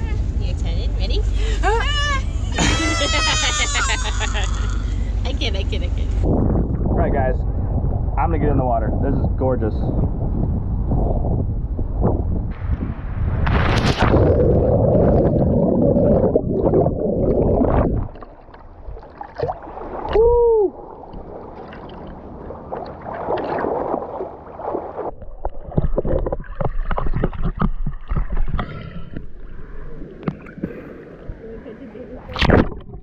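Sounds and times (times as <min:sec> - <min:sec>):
water splashing and churning: 0:11.9 - 0:33.0.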